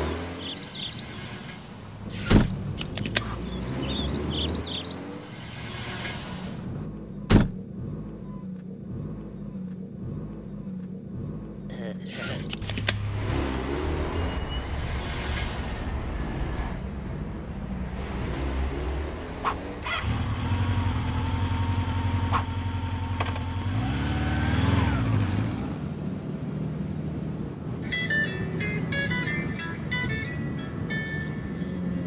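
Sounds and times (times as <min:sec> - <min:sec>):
scooter engine revving: 0:00.0 - 0:06.6, 0:12.2 - 0:15.6, 0:18.0 - 0:26.0
car engine running: 0:00.0 - 0:27.7.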